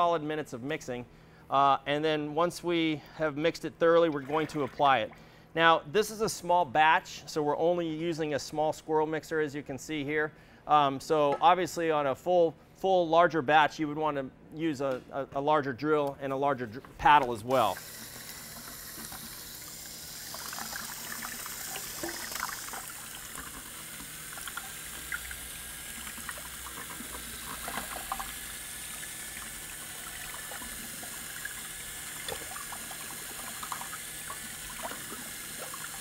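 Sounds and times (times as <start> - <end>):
liquid swishing: 4.0 - 5.1, 17.5 - 36.0.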